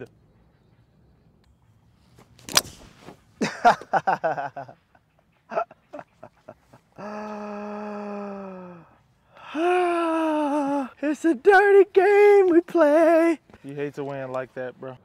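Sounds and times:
voices: 0:00.0 - 0:00.2, 0:03.4 - 0:15.0
golf club striking ball: 0:02.4 - 0:03.2.

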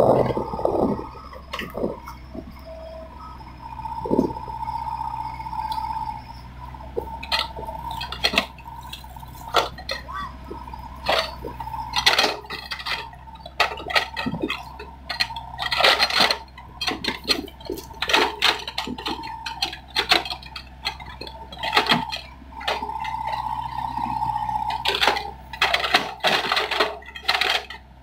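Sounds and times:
excavator bucket metallic clanks: 0:00.0 - 0:28.0
low engine hum: 0:00.0 - 0:28.0
steady whine: 0:00.0 - 0:28.0.

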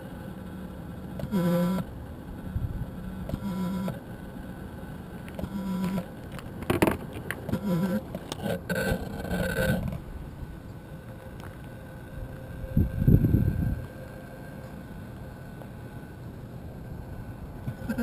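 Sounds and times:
short low electronic tones: 0:01.2 - 0:04.0, 0:07.5 - 0:18.0
low rumble: 0:09.0 - 0:18.0.

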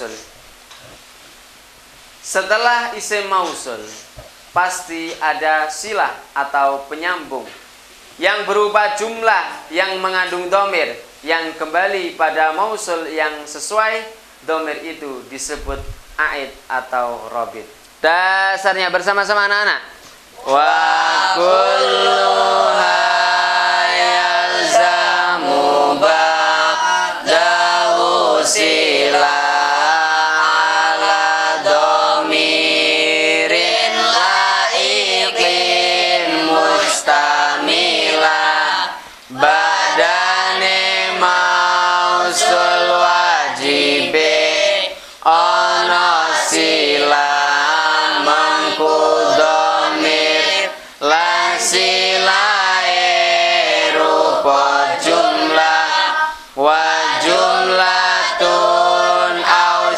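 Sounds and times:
boys chanting in unison: 0:20.4 - 0:59.9.

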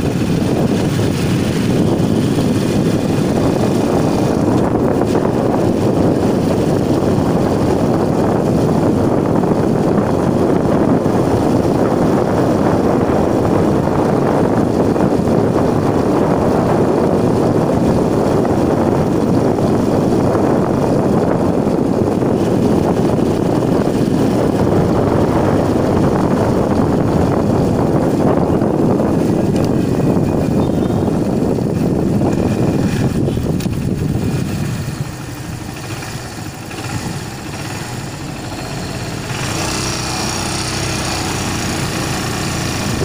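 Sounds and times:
vehicle road noise: 0:00.0 - 0:43.0
wind on microphone: 0:00.0 - 0:43.0.

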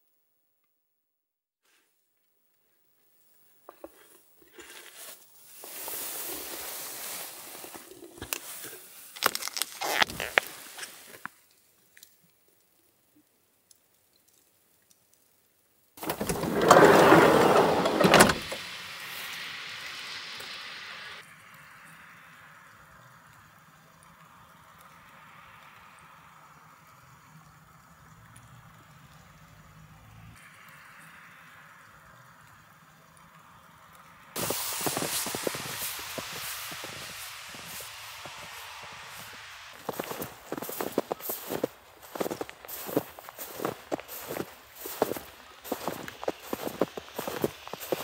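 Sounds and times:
faint steady hiss: 0:01.6 - 0:48.0
rustling: 0:03.7 - 0:11.4.

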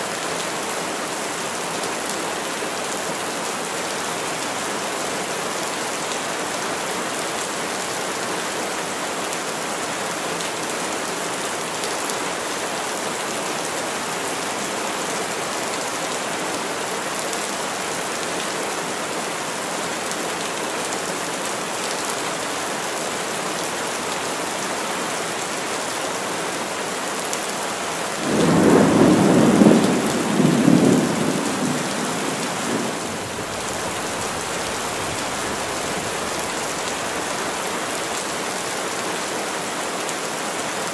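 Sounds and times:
heavy rain through trees: 0:00.0 - 0:40.9
thunder rumble: 0:28.2 - 0:35.8.

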